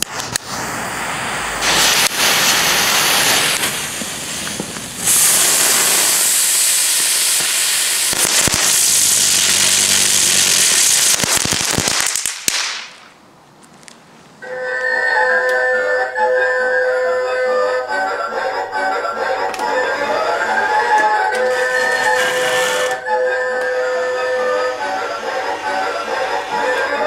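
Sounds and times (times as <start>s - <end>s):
firework fountain hissing: 0.0s - 13.2s, 21.4s - 23.0s, 23.8s - 27.0s
firework pops and crackles: 0.0s - 14.1s.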